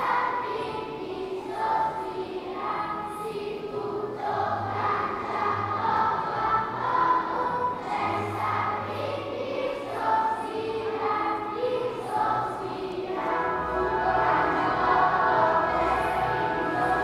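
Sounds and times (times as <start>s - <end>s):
children's choir singing: 0.0s - 17.0s
low accompaniment: 3.8s - 17.0s.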